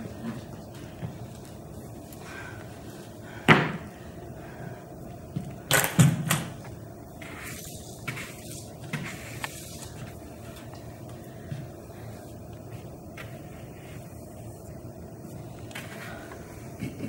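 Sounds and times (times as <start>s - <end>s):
broom sweeping floor: 6.6s - 17.0s.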